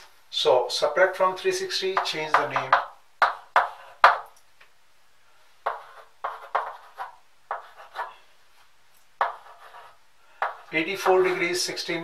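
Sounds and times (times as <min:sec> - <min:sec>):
chalk writing on a blackboard: 0:02.0 - 0:04.2, 0:05.6 - 0:08.2, 0:09.2 - 0:11.8.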